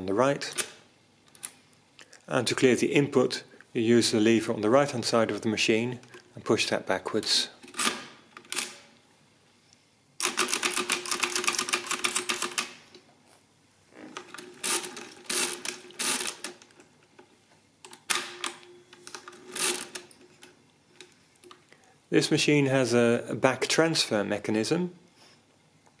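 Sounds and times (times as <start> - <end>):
hand-cranked calculator clattering: 10.2 - 12.7.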